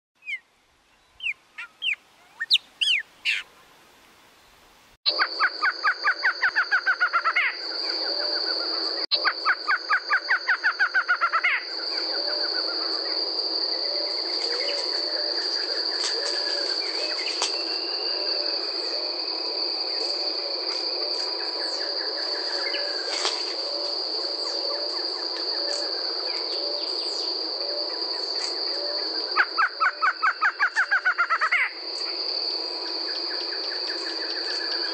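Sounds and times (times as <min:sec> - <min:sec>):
bird singing rapid repeated notes: 0:00.2 - 0:03.5
faint bird calls: 0:01.2 - 0:03.8
high-pitched insect trill: 0:05.1 - 0:34.9.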